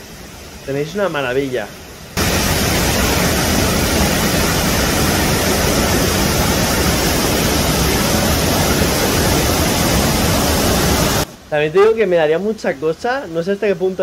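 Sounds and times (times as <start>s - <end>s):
waterfall roar: 0.0s - 11.3s.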